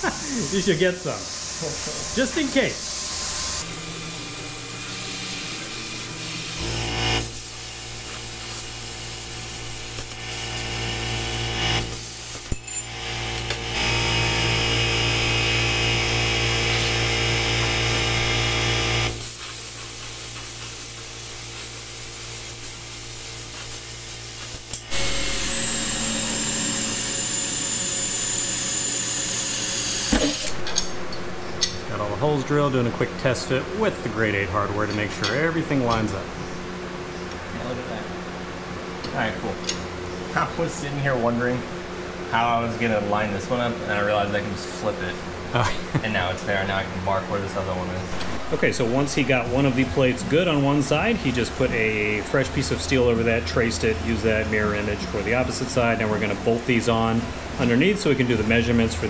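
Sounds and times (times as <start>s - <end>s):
plasma cutter hissing: 0.0s - 10.6s, 11.8s - 12.5s, 19.1s - 30.6s
machine hum: 0.0s - 19.4s, 23.9s - 59.0s
drill boring through steel: 0.4s - 19.4s, 23.8s - 30.6s.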